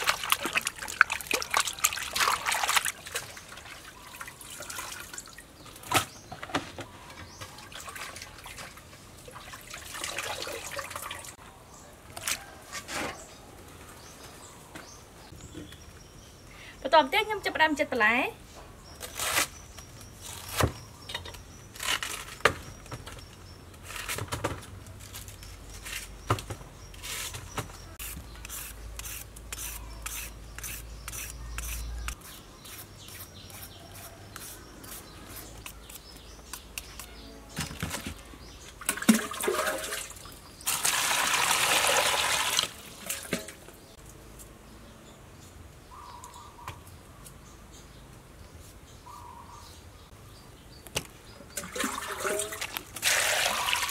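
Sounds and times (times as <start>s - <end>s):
water pouring into basin: 9.2s - 11.3s, 38.8s - 43.5s, 51.6s - 53.9s.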